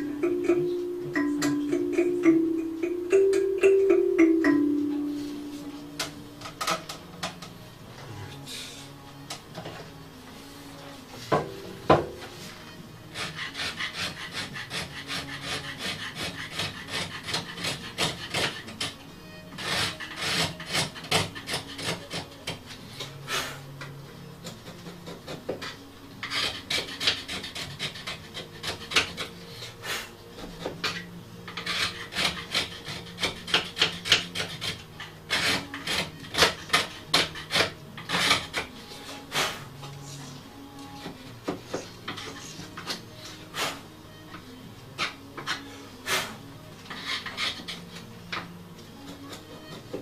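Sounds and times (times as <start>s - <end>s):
hand file rasping on wood: 12.4s - 23.8s, 24.4s - 40.4s, 41.0s - 50.0s.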